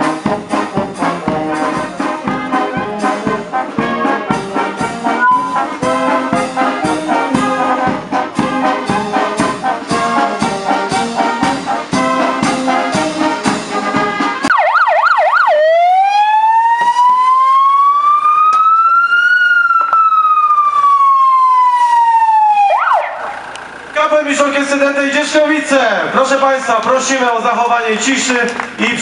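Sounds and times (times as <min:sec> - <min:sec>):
brass marching band playing: 0:00.0 - 0:17.7
fire engine siren wailing: 0:01.0 - 0:13.5, 0:14.3 - 0:24.0.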